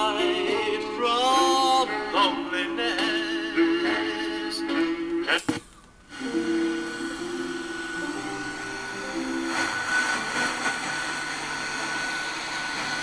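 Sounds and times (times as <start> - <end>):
radio static and hiss: 5.2 - 13.0
radio tones shifting pitch: 6.1 - 13.0.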